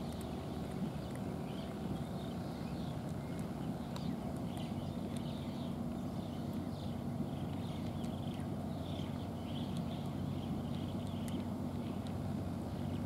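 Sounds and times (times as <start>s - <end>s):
cat chewing clicks: 0.0s - 5.7s
low outdoor rumble: 0.0s - 13.0s.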